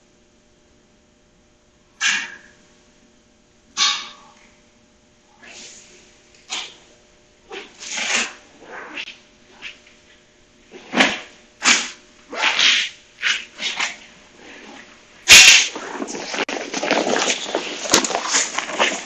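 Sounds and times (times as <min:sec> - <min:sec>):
sharp loud crack: 0:10.9 - 0:13.9, 0:15.3 - 0:16.5
footsteps: 0:14.6 - 0:19.0
nylon jacket rustling: 0:15.4 - 0:19.0.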